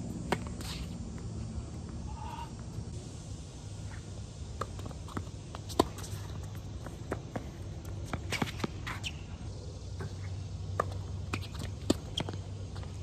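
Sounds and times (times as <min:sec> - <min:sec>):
steady low hum: 0:00.0 - 0:13.0
tennis ball hits and bounces: 0:04.6 - 0:07.4.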